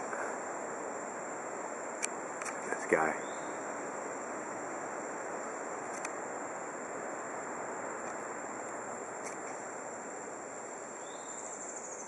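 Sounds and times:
high-pitched insect drone: 4.8 - 12.0.

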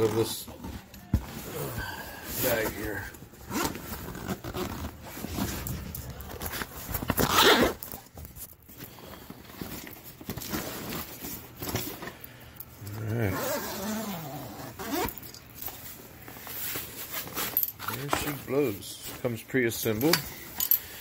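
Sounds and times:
bag fabric rustling: 0.1 - 8.1, 13.3 - 19.4
zipper pulled open: 3.4 - 7.8, 12.9 - 15.2.

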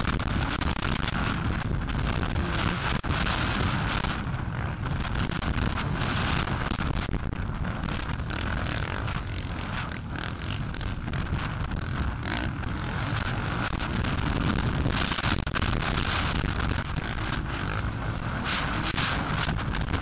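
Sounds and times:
motocross bike revving hard: 0.0 - 20.0
other motocross bikes: 0.0 - 20.0
wind buffeting microphone: 0.0 - 20.0.

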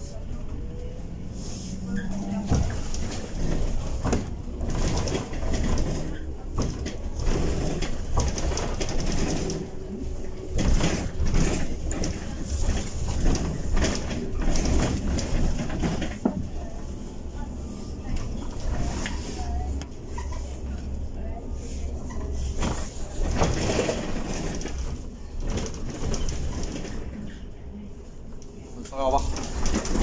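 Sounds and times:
bus road rumble: 0.0 - 30.0
knocks and rattles: 2.4 - 9.7, 10.5 - 16.5, 22.6 - 27.4, 29.2 - 30.0.

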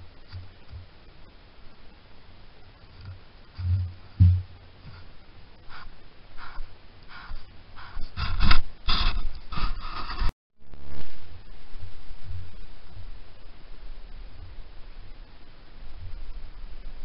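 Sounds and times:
dull low thumps: 3.0 - 5.2.

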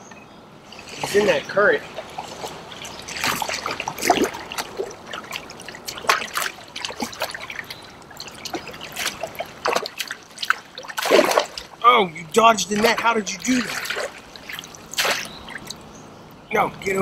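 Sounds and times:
water trickling and splashing: 0.0 - 17.0.

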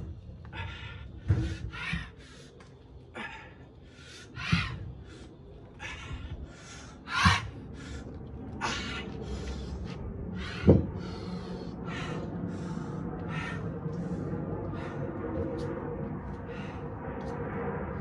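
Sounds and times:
man breathing hard: 0.1 - 17.1
dumbbells thudding on concrete: 10.6 - 10.9.

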